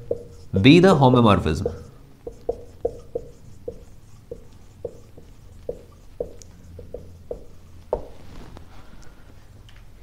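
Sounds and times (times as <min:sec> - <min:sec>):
marker squeaking on whiteboard: 0:00.0 - 0:08.2.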